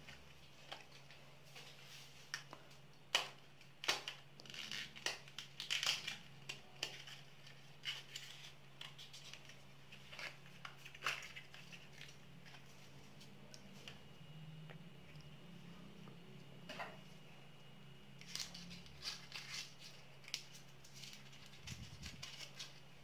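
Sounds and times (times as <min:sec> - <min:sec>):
faint low hum: 0:00.0 - 0:23.0
foil wrapper crinkling: 0:03.6 - 0:12.7, 0:18.2 - 0:23.0.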